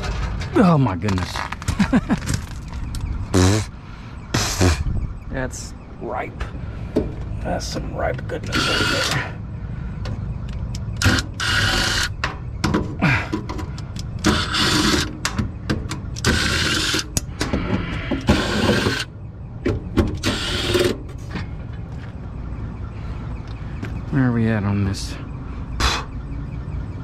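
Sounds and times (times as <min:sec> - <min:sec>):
steady low hum: 0:00.0 - 0:27.0.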